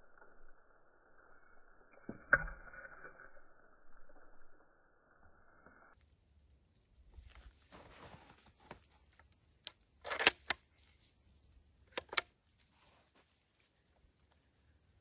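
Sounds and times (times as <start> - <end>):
clothing rustling: 7.2 - 9.0.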